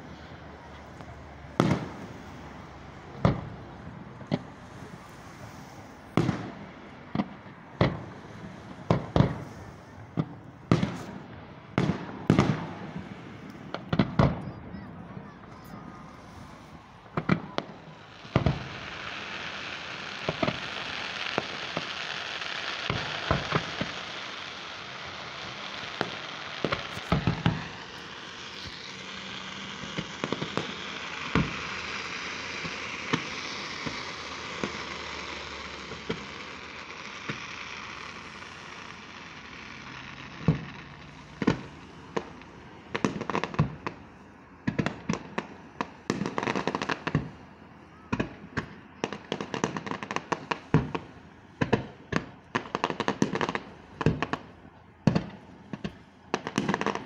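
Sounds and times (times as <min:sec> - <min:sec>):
fireworks bangs: 0:00.0 - 0:57.0
steady hiss: 0:15.6 - 0:42.6.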